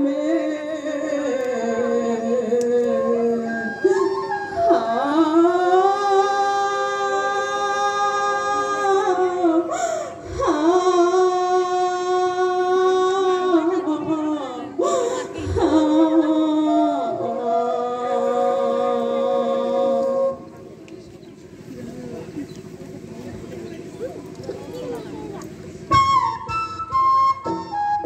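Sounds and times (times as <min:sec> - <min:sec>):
women singing devotional song: 0:00.0 - 0:20.5.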